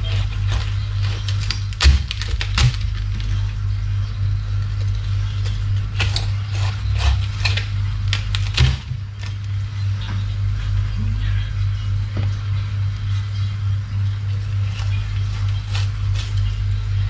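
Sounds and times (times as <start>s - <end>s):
knife crunching crispy pork skin: 0.0s - 3.4s, 4.6s - 9.5s, 14.4s - 16.6s
steady low hum: 0.0s - 17.0s.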